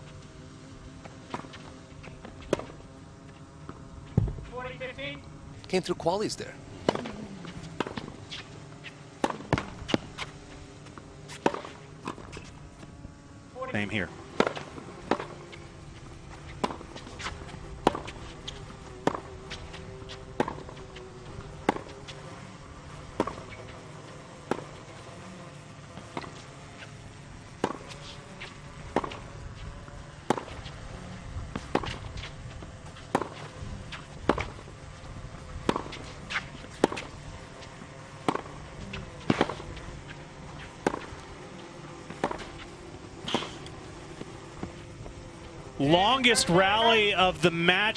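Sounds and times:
tennis ball bouncing: 6.8 - 12.6, 14.4 - 15.6, 16.3 - 20.8, 21.6 - 22.2, 33.0 - 34.7, 35.6 - 44.8
racket striking tennis ball: 35.6 - 37.1, 39.2 - 41.2, 42.1 - 43.7.

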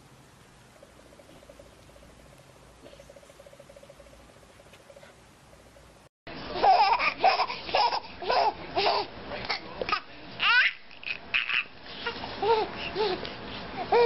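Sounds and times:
baby giggling: 6.6 - 13.2.

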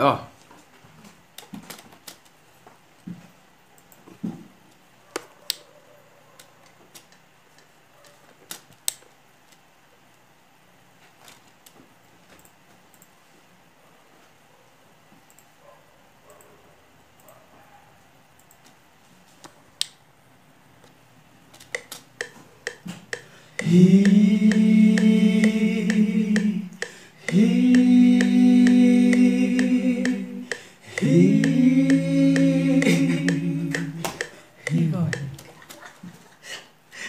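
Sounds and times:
men singing a cappella: 23.5 - 35.4.

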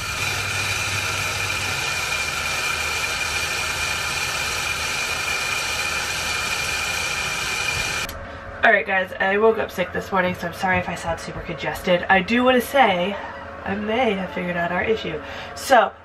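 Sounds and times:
hose water spraying: 0.0 - 8.1
low hum: 0.0 - 16.0.

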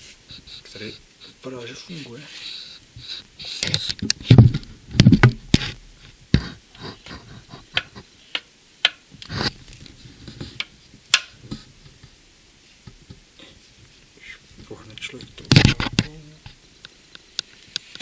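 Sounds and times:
dull thump: 4.2 - 5.8.

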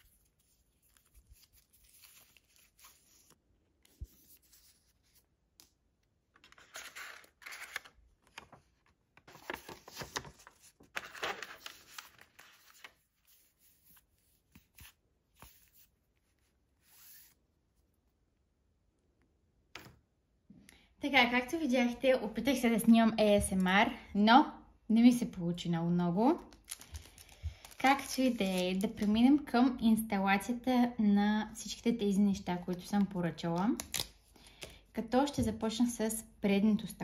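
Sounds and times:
wrapping crinkling: 26.5 - 29.1.

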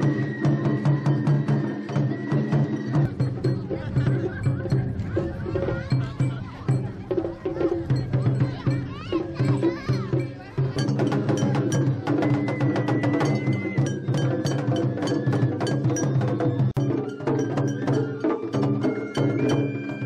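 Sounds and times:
bamboo flute high notes: 0.0 - 3.4, 11.4 - 20.0
taiko drumming: 0.0 - 20.0.

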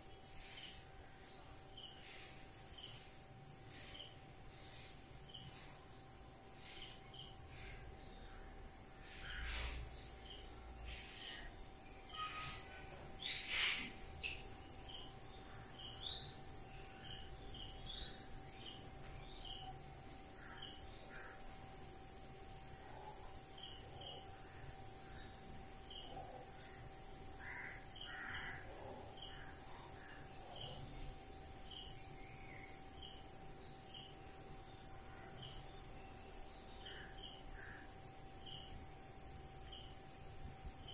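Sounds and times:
insects trilling: 0.0 - 40.9
short insect chirps: 9.0 - 15.2.

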